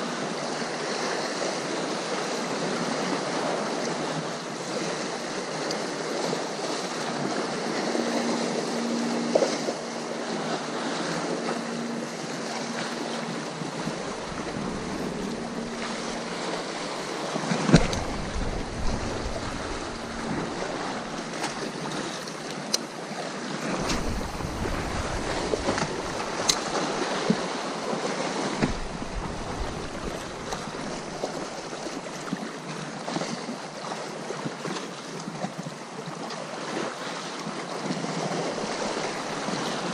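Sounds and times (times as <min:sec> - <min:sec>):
surf washing on shore: 0:00.0 - 0:39.9
faint steady hum: 0:05.7 - 0:27.6, 0:28.6 - 0:32.4
wind buffeting microphone: 0:06.5 - 0:22.8, 0:23.6 - 0:27.6, 0:28.5 - 0:32.5.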